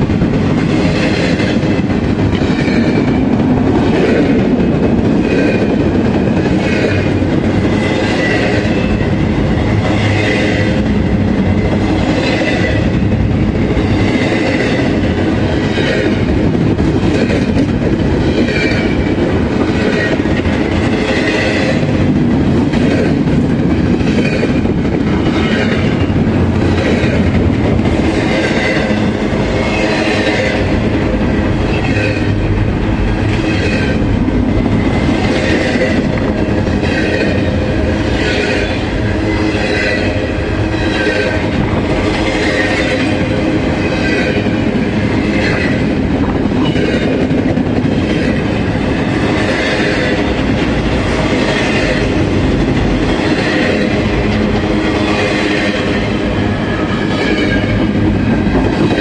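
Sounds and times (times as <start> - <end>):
train wheels rumbling on rails: 0.0 - 59.0.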